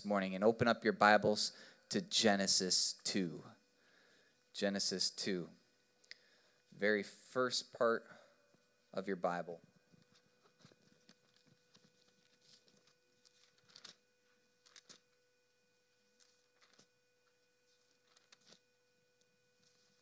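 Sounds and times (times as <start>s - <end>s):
faint electrical tone: 0.0s - 20.0s
pages being turned: 10.0s - 15.1s, 16.2s - 17.0s, 17.7s - 18.7s.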